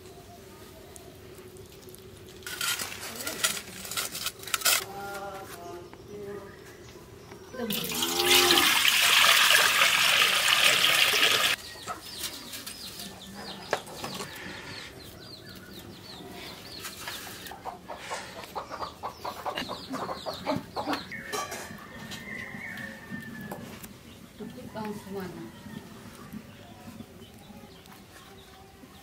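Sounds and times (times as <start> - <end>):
water splashing into metal pot: 7.7 - 11.6
chickens clucking and chirping: 11.5 - 29.0.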